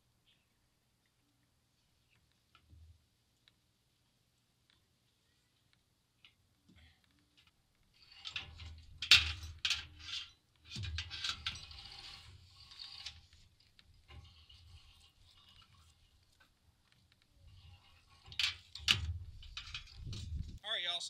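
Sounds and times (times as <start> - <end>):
rope scraping in metal bucket: 8.0 - 16.5, 17.4 - 20.5.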